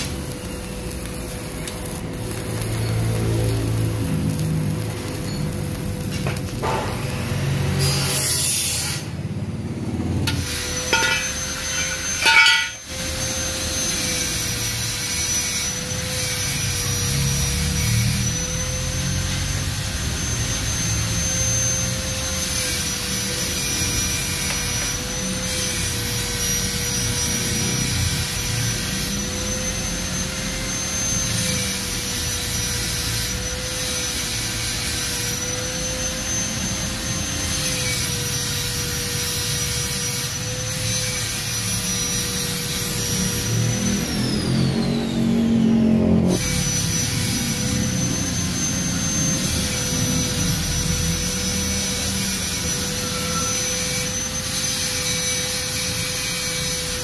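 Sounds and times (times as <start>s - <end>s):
welding arc: 0.0s - 57.0s
welding machine electrical whine: 0.0s - 57.0s.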